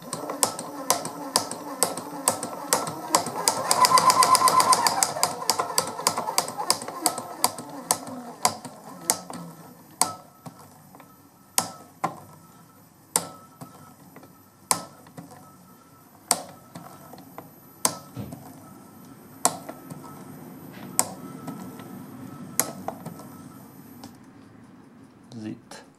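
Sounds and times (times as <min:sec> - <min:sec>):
scooter drive wheel clacking: 0:00.0 - 0:12.3, 0:19.4 - 0:24.5
faint steady whine: 0:00.0 - 0:25.9.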